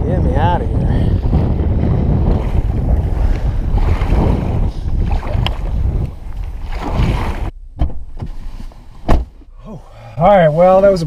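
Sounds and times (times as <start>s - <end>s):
wind buffeting microphone: 0.0s - 7.6s
water slapping against kayak: 1.2s - 7.5s.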